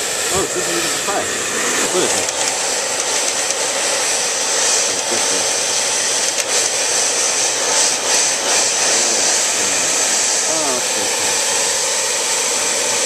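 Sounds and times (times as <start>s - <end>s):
hair dryer blowing: 0.0s - 13.0s.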